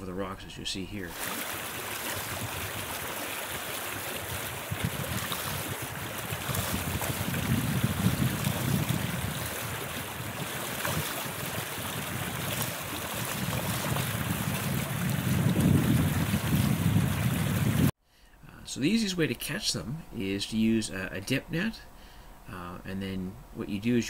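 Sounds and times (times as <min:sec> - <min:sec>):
river water rushing over rocks: 0:01.2 - 0:07.6.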